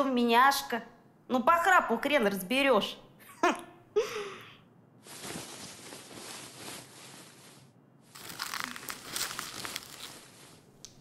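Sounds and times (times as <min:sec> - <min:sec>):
packaging rustling and crinkling: 0:05.1 - 0:11.0.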